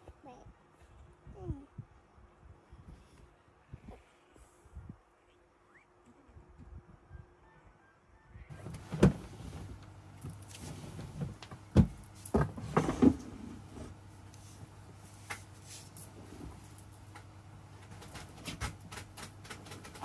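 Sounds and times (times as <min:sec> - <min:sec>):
plastic drawers opening and shutting: 0:08.5 - 0:14.0.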